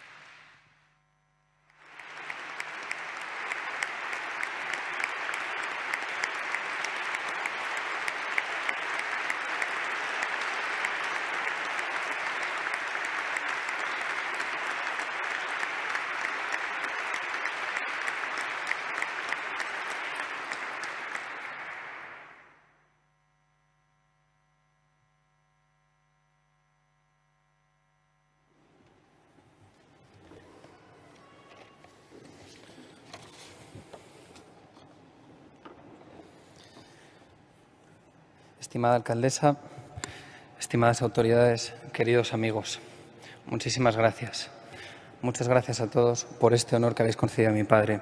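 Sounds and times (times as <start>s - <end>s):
audience applause: 0.0s - 0.6s, 1.7s - 22.6s.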